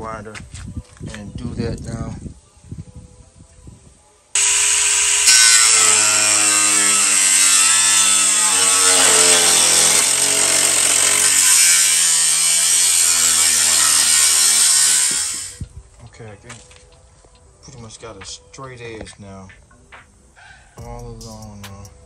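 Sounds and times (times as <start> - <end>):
angle grinder cutting metal: 4.4 - 15.6.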